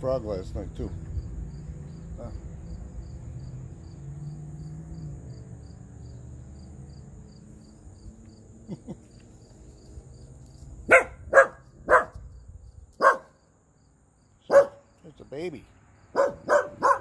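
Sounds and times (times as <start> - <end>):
dog barking: 10.9 - 12.2, 13.0 - 13.4, 14.5 - 14.8, 16.1 - 17.0.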